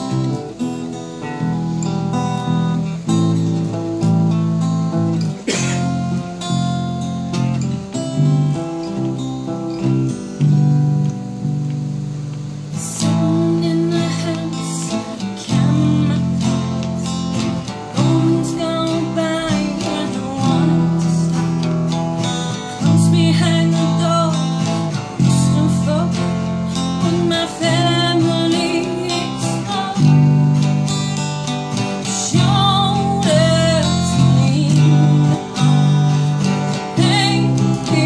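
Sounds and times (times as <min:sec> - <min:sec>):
electric bass guitar: 0:00.0 - 0:38.0
woman singing: 0:12.7 - 0:38.0.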